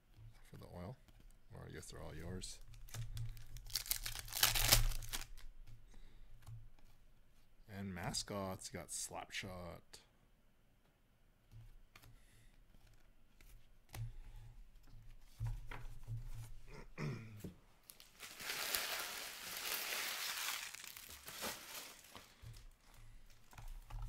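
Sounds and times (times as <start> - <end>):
handling noises and light clicks: 0.0 - 7.6, 10.8 - 16.7, 20.9 - 24.0
plastic packaging crinkling and tearing: 2.6 - 5.4, 17.8 - 24.0.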